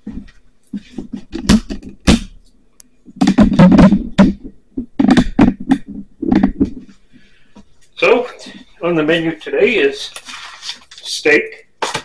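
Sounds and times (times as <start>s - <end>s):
camera handling knocks and rubbing: 0.0s - 2.3s, 3.1s - 7.7s.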